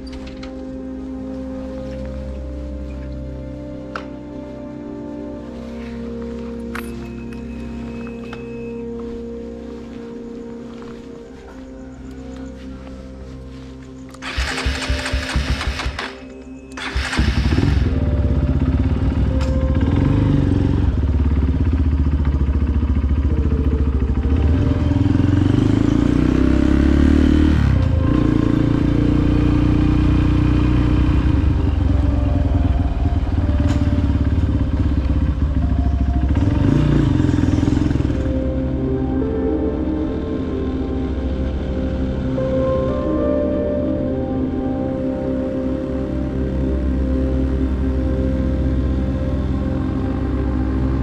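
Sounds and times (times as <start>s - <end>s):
quiet background music: 0.0s - 51.0s
motorcycle engine running: 14.2s - 41.6s.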